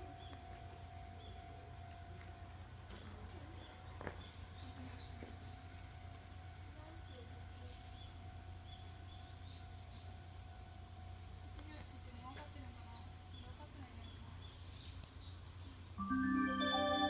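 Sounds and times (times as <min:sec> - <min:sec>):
high-pitched insect chorus: 0:00.0 - 0:02.8, 0:03.6 - 0:17.0
low background hum: 0:00.0 - 0:17.0.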